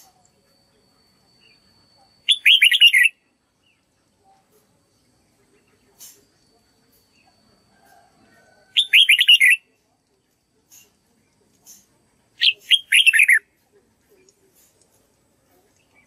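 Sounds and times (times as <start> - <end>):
bird singing whistled notes: 1.4 - 3.2, 8.8 - 9.7, 12.4 - 13.5.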